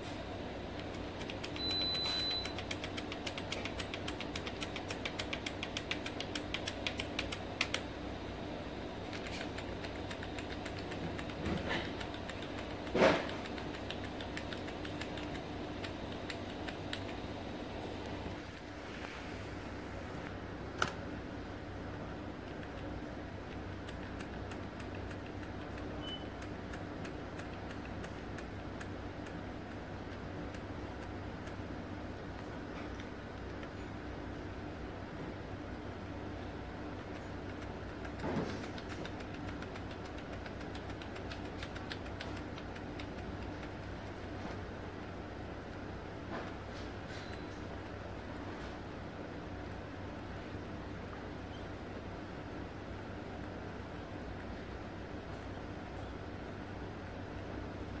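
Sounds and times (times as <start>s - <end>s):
low hum and hiss: 0.0s - 58.0s
keyboard key tapping: 0.8s - 7.9s, 9.0s - 17.2s, 22.4s - 31.6s, 37.0s - 44.3s.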